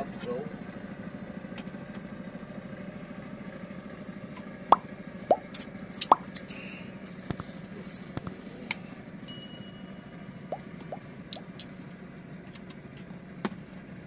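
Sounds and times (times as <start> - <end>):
low motor hum: 0.0 - 14.0
rising bloop pops: 4.7 - 6.3, 10.5 - 11.5
mouse clicks: 7.3 - 7.5.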